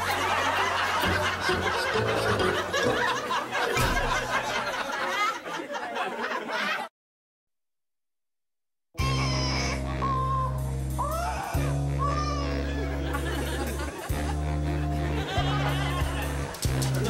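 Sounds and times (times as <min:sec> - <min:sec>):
background music: 0:00.0 - 0:05.0, 0:09.0 - 0:17.0
people laughing: 0:00.0 - 0:06.9, 0:12.2 - 0:17.0.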